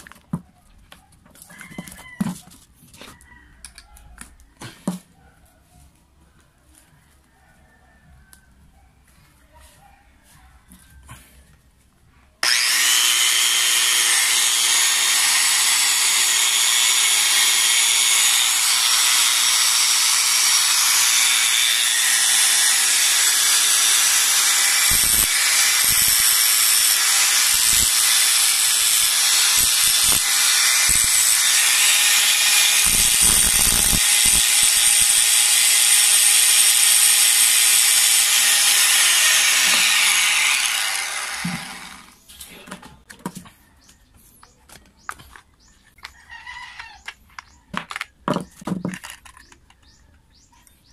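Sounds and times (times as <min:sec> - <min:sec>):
angle grinder whining: 0:12.4 - 0:42.2
grinder disc grinding steel rod: 0:12.4 - 0:42.2.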